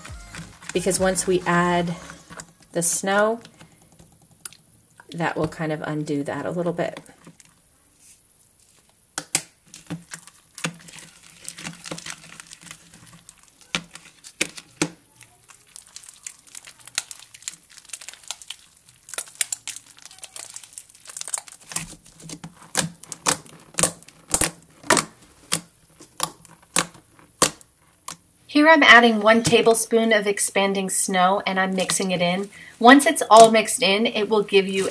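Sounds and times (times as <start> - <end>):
slime crackling and popping: 8.5 - 28.4.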